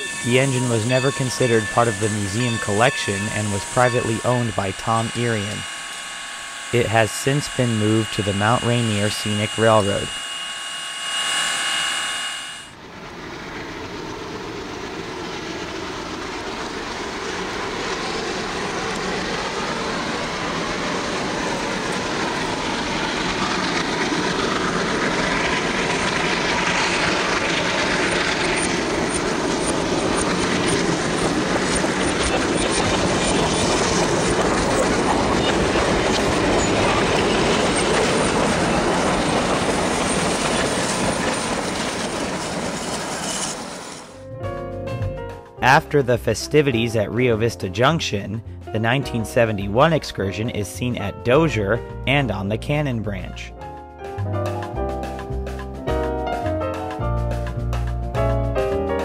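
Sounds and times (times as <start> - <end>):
short held tone: 0.0 - 12.8
train rolling along rails: 0.0 - 44.2.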